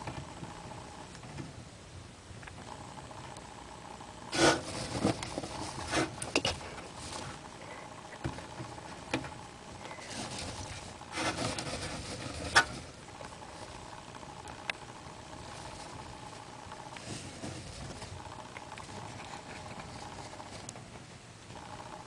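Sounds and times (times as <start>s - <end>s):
hamster rustling through bedding: 4.3s - 7.6s, 9.9s - 13.7s, 15.3s - 18.2s.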